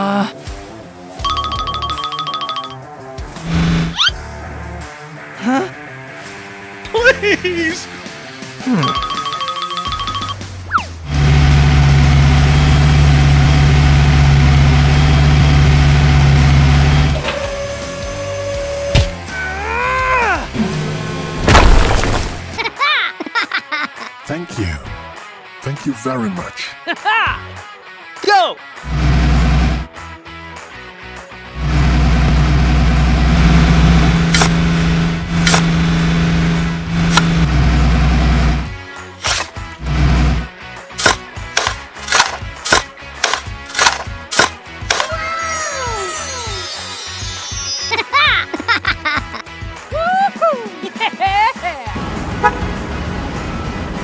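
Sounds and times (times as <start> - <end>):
loader engine running: 10.2 - 19.3, 28.8 - 29.9, 31.5 - 38.8, 39.7 - 42.4.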